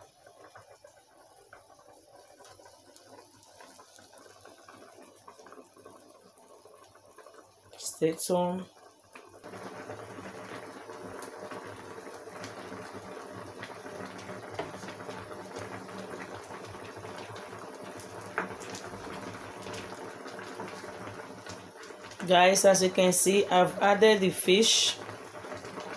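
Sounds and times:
pot boiling and bubbling: 0:00.0 - 0:25.9.

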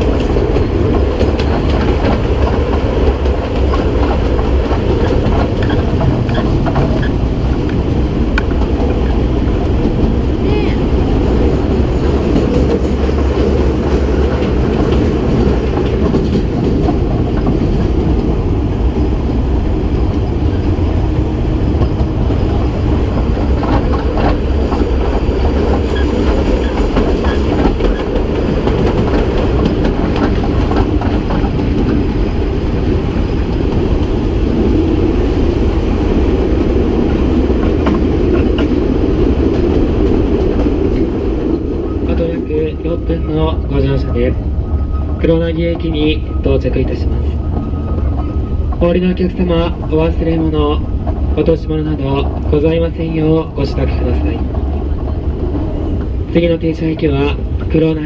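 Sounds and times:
clicks over rail joints: 0:00.0 - 0:10.2, 0:21.7 - 0:32.2
train wheels rumbling on rails: 0:00.0 - 0:58.0.

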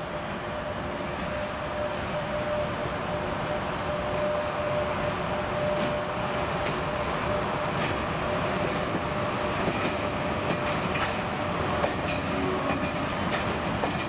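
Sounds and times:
electric locomotive humming: 0:00.0 - 0:14.0
wheels clicking over rail joints: 0:07.8 - 0:14.0.

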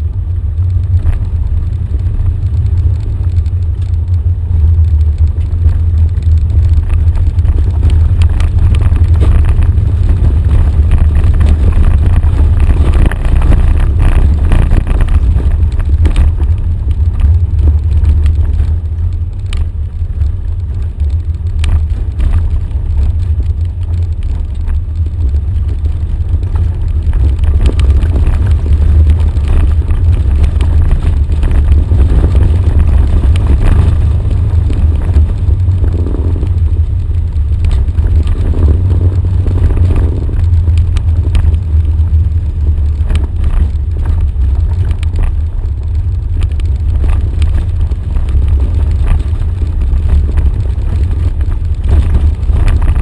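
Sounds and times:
off-road vehicle engine rumble: 0:00.0 - 0:53.0
knocks from rough ground: 0:06.9 - 0:16.6.

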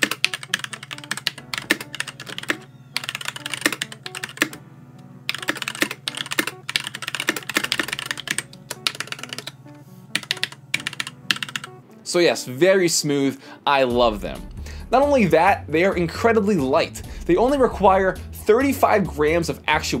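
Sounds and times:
mechanical keyboard typing: 0:00.0 - 0:04.6, 0:05.3 - 0:11.8.

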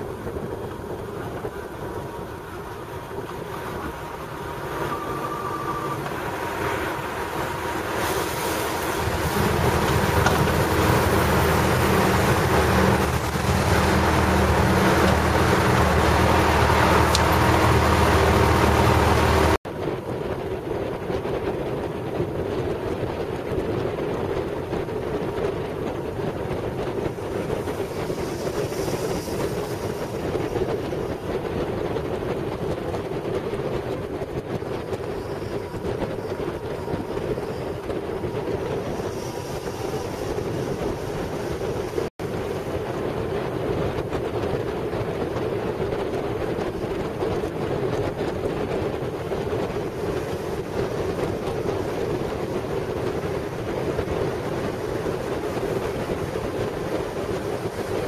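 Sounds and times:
motorcycle road noise: 0:00.0 - 0:58.0
wind rush on microphone: 0:00.0 - 0:58.0
low drone: 0:01.2 - 0:19.6.

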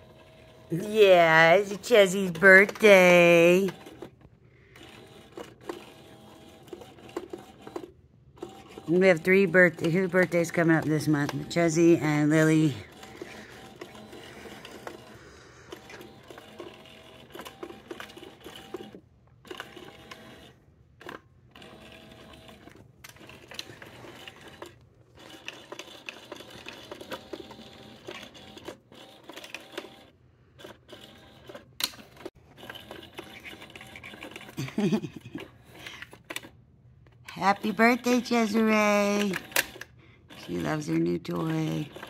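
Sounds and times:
small electric motor whirring: 0:00.0 - 0:20.6.

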